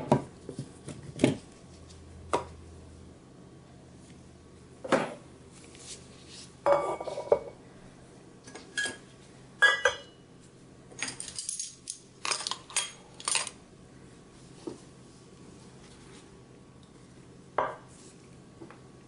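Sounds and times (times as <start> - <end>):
metal kitchenware clinking on wood: 8.7 - 9.0, 9.6 - 10.2.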